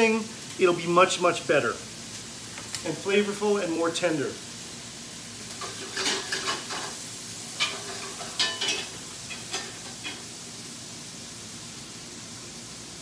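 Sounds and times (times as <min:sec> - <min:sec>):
shrimp sizzling in a pan: 0:00.0 - 0:13.0
utensil scraping and clinking on pan: 0:05.6 - 0:07.0, 0:07.6 - 0:10.2.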